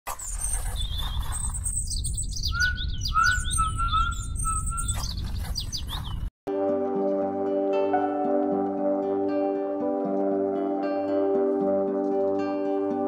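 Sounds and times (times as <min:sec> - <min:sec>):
birds chirping and whistling: 0:00.1 - 0:06.3
slow music with ringing bowl tones: 0:06.5 - 0:13.0.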